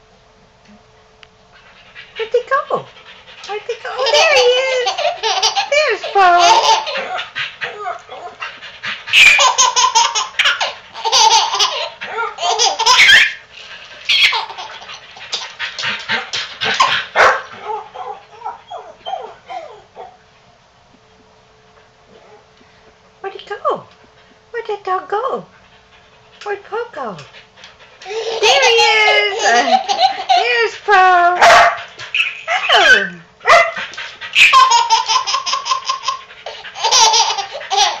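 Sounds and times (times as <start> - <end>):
baby laughing: 3.8 - 8.4, 9.1 - 13.4, 14.0 - 15.6, 28.0 - 30.6, 32.1 - 33.1, 34.3 - 38.0
dog barking: 16.8 - 18.6, 31.4 - 31.8, 33.5 - 33.8.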